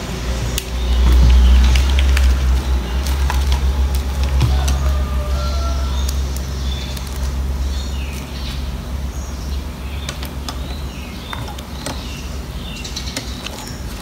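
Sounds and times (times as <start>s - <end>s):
steady low rumble: 0.0s - 14.0s
plastic sleeves crinkling: 0.3s - 8.9s, 10.1s - 14.0s.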